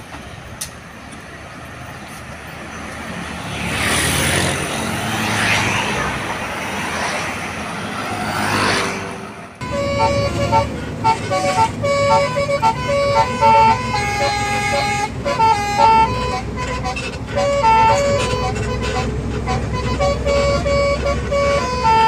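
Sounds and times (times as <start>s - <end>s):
traffic passing close by: 0.0s - 22.0s
low engine hum: 9.4s - 22.0s.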